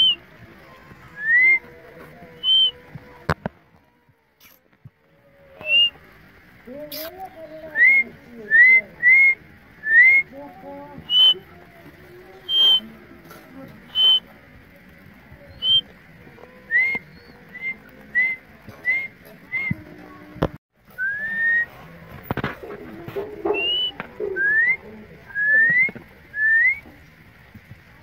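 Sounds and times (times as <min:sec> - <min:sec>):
rising whistled chirps: 0:02.4 - 0:02.8, 0:11.1 - 0:11.4, 0:13.9 - 0:14.2, 0:15.5 - 0:15.9.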